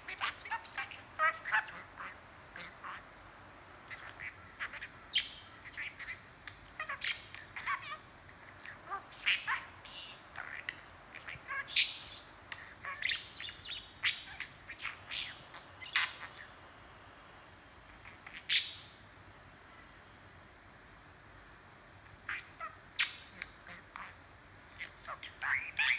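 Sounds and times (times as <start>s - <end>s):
budgerigar chattering: 0.0s - 3.0s, 3.8s - 16.5s, 24.8s - 25.9s.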